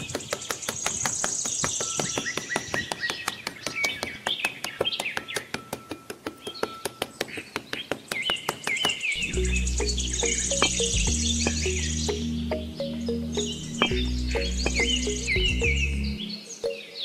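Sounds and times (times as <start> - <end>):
birds chirping: 0.0 - 17.0
high bird trill: 8.2 - 17.0.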